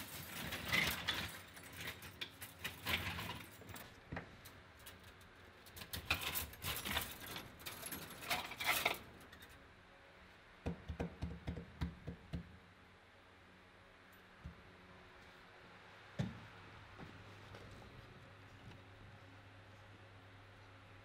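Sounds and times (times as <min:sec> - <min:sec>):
scrap copper rustling and clinking: 0:00.0 - 0:09.6.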